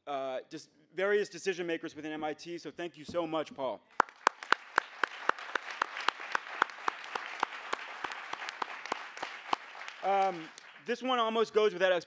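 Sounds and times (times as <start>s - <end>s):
close sharp hand claps: 3.9s - 11.1s
audience applauding: 4.0s - 11.4s.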